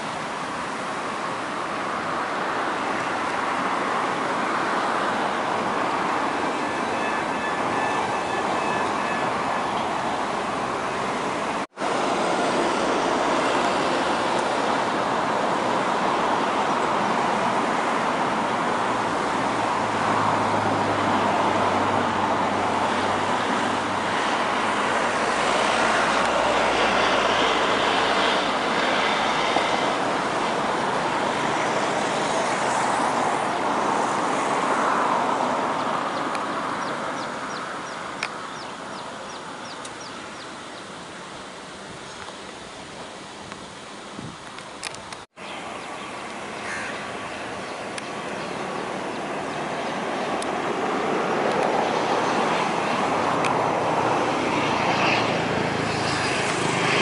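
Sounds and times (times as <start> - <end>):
turboprop engines running loudly: 45.6 - 57.0.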